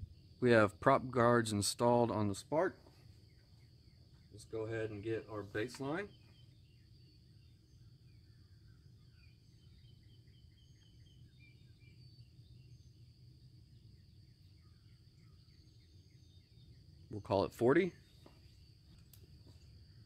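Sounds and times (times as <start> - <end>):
faint bird chirps: 2.0 - 20.0
high insect buzz: 2.9 - 17.2
low background rumble: 3.2 - 17.2.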